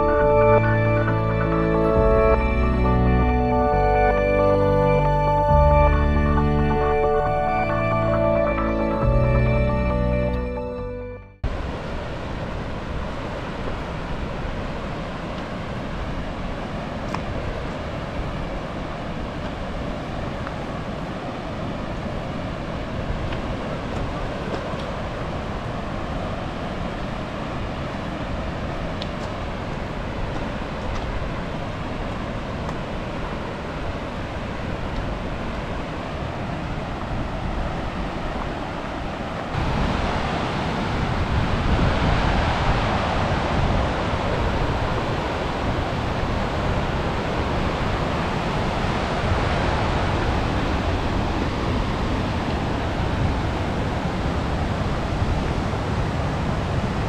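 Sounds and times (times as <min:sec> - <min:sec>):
flowing water rushing: 0:11.4 - 0:57.0.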